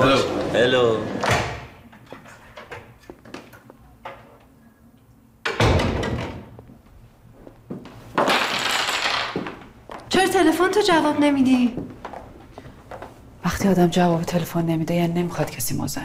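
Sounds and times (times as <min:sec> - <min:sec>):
door thud: 0:05.5 - 0:06.6.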